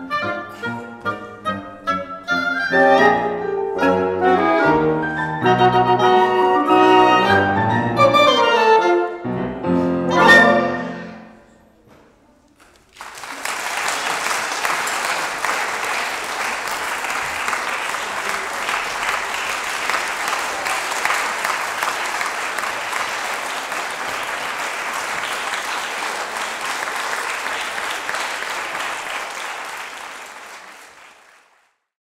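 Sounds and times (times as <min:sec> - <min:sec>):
audience applauding: 0:12.6 - 0:31.9.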